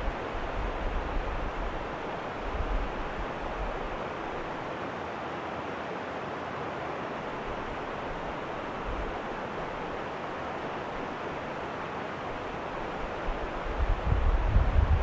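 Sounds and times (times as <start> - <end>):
stream cascading over rocks: 0.0 - 13.8.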